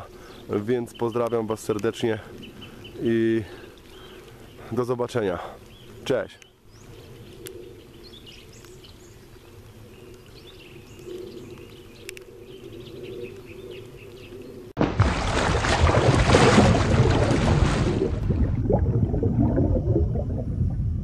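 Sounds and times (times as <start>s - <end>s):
faint birds chirping: 0.0s - 14.8s
lakeside ambience: 0.0s - 21.0s
splash and bubbles rushing: 14.8s - 21.0s.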